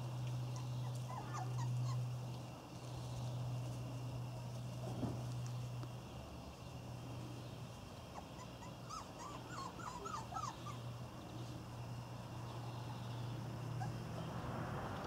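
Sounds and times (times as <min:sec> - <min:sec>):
steady low hum: 0:00.0 - 0:15.0
puppy whimpering: 0:00.6 - 0:02.1, 0:08.2 - 0:10.9.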